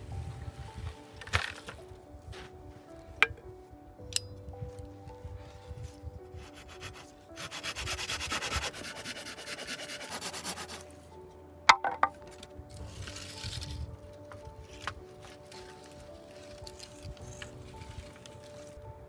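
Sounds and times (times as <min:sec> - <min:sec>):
saw cutting wood: 0:06.6 - 0:10.8
sharp wooden knocks: 0:11.7 - 0:12.3.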